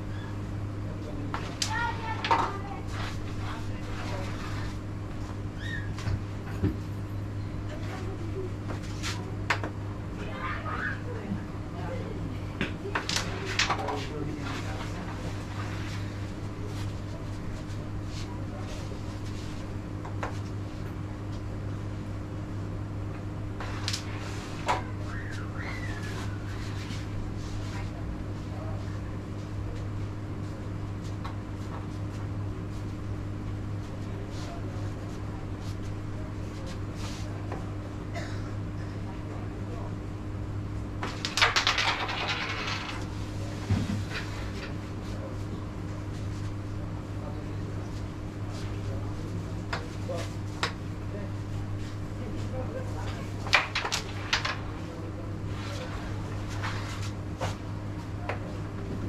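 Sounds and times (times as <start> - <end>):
steady low hum: 0.0 - 59.0
striker clacking into carrom coins: 41.2 - 43.1.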